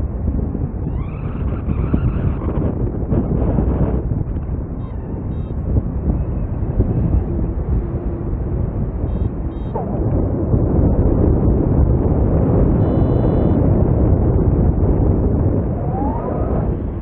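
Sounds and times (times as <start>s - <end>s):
wind buffeting microphone: 0.0s - 17.0s
faint high beeps: 12.8s - 13.6s.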